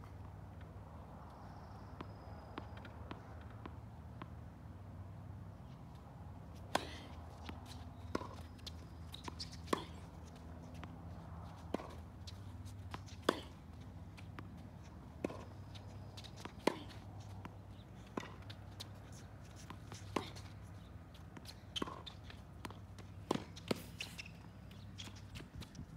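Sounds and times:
tennis ball bouncing: 2.0 - 4.5, 5.6 - 25.7
tennis racket hitting ball: 6.5 - 10.9, 11.6 - 14.4, 15.2 - 17.0, 18.2 - 18.9, 21.8 - 22.0, 22.6 - 24.1.

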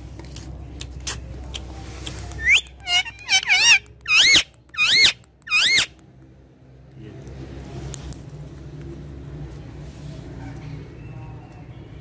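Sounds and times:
parakeet shrill calls: 2.4 - 6.0.

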